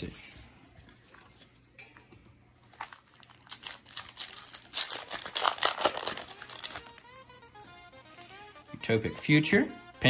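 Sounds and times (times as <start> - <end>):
foil wrapper crinkling and tearing: 2.6 - 7.1.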